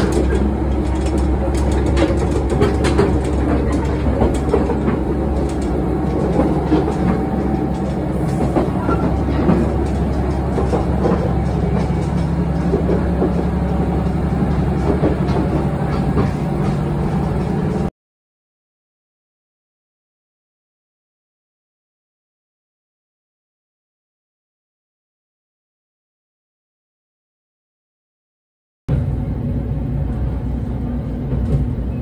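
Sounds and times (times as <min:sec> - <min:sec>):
railcar engine drone: 0:00.0 - 0:17.9, 0:28.9 - 0:32.0
wheels clicking over rail joints: 0:00.0 - 0:17.9.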